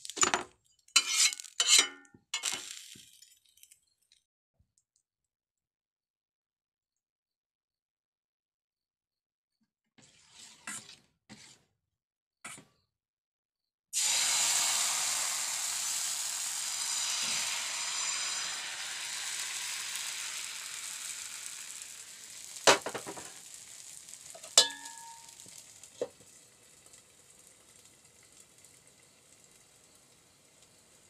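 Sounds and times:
batter sizzling on a hot pan: 0.0s - 3.7s, 14.0s - 31.0s
sharp metal clanks: 24.5s - 25.4s.

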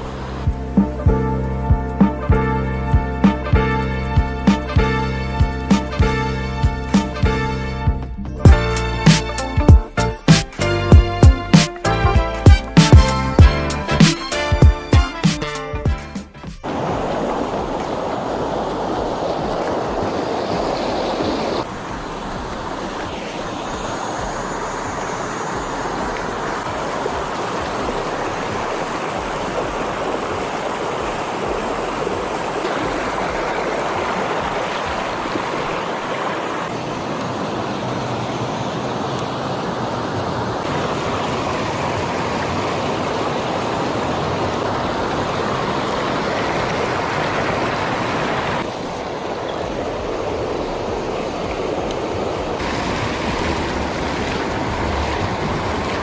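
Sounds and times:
creek rushing over stones: 0.0s - 2.3s, 16.4s - 56.0s.

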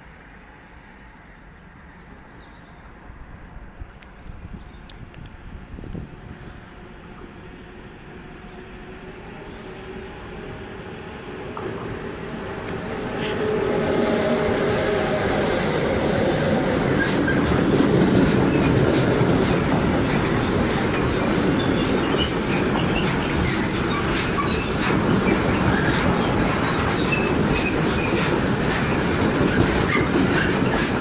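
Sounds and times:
freight train passing: 0.0s - 31.0s
high wheel squeaks: 16.3s - 31.0s.

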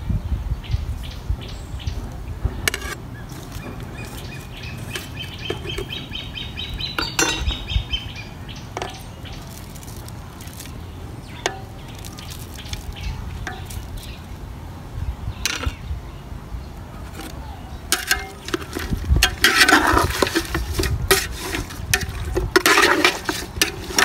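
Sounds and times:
bird singing a fast trill: 3.1s - 9.6s
metal spoon clinking on cookware: 7.0s - 7.6s, 13.4s - 13.9s, 17.9s - 24.0s.

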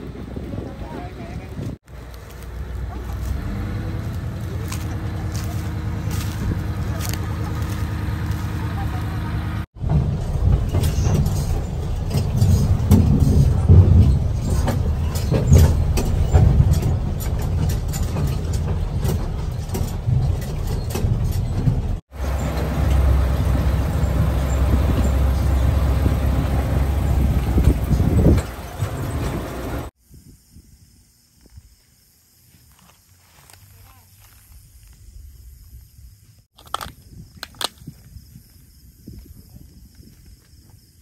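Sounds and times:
low engine rumble: 0.0s - 30.0s.

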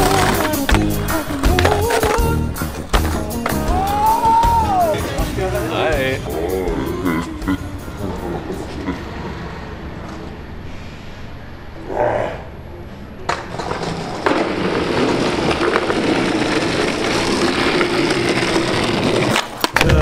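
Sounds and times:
skateboard clacks: 0.0s - 5.1s, 13.2s - 20.0s
skateboard wheels rolling: 0.0s - 5.8s, 13.0s - 20.0s.

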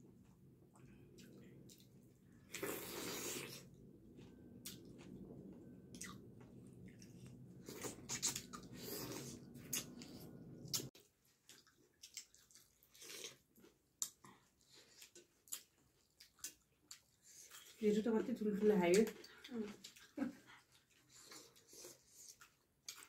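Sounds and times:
low background hum: 0.0s - 23.0s
chewing and mouth smacks: 0.2s - 17.8s, 19.0s - 23.0s.

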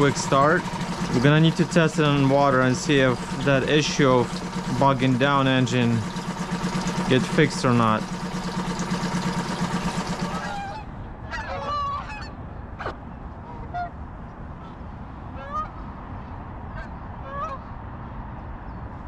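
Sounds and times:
outboard motor idling: 0.0s - 11.1s
geese honking: 10.2s - 12.3s.

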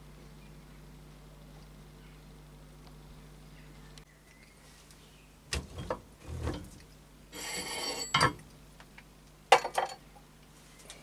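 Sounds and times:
metal plate scraping: 5.6s - 8.2s.

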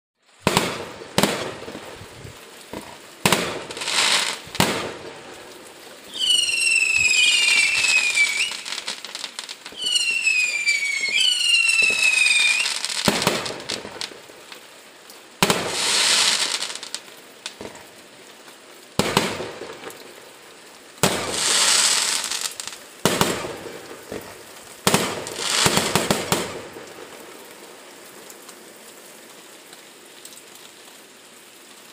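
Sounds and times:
firework crackling bursts: 0.2s - 14.7s, 15.4s - 18.1s, 19.0s - 20.3s, 21.0s - 27.4s
firework shells bursting: 0.4s - 5.3s, 6.1s - 14.2s, 15.4s - 17.9s
high falling whistling: 6.1s - 12.9s.

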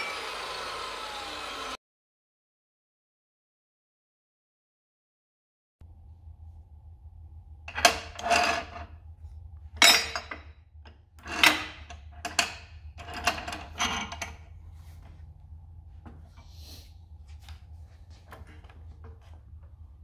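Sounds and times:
low steady hum: 5.8s - 20.0s.

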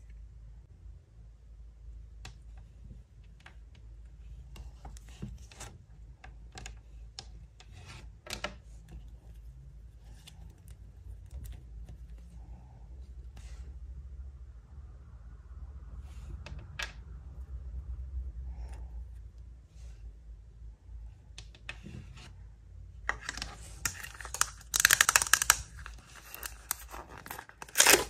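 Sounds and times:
faint low hum: 0.0s - 28.0s
fingernails clicking plastic pieces: 23.2s - 28.0s.

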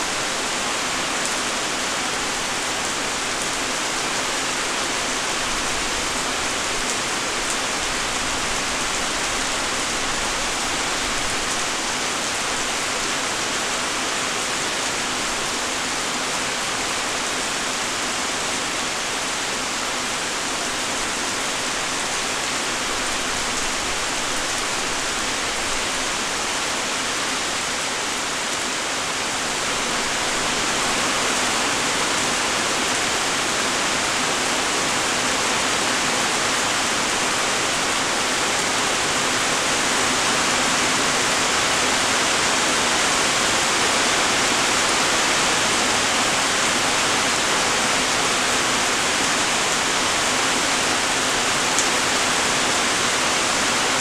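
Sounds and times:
light rain falling: 0.0s - 54.0s.

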